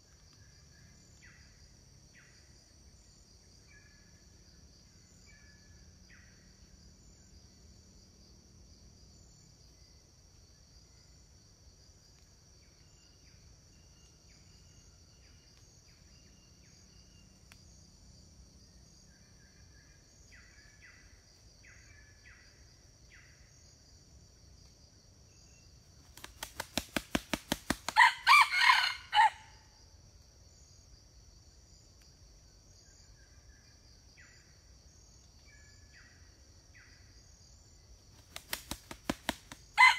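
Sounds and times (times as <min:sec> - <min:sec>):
high insect drone: 0:00.0 - 0:39.9
rooster wings flapping: 0:26.0 - 0:28.4, 0:38.2 - 0:39.9
rooster crowing: 0:27.9 - 0:29.6.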